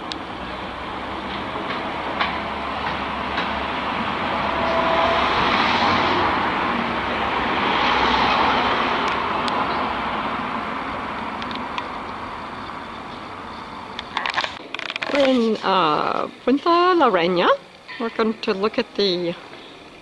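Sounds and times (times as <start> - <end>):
car road and tyre noise: 0.0 - 15.3.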